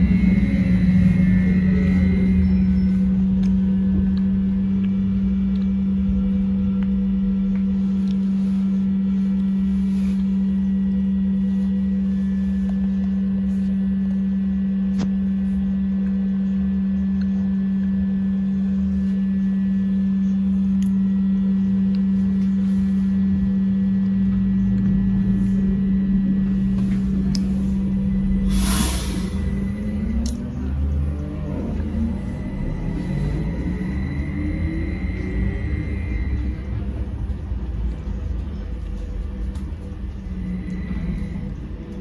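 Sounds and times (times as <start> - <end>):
low road rumble: 0.0 - 42.0
trolleybus low hum: 0.0 - 42.0.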